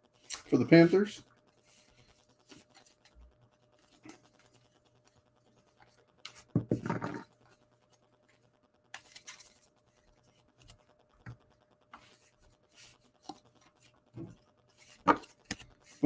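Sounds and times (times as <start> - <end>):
trading cards sliding and scraping: 1.6 - 3.2, 9.0 - 10.9, 12.0 - 16.0.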